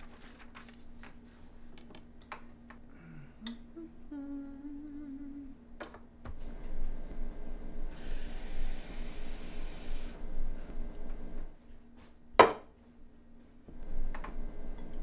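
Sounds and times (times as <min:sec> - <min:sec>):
glass knocking on countertop: 0:12.4 - 0:12.6.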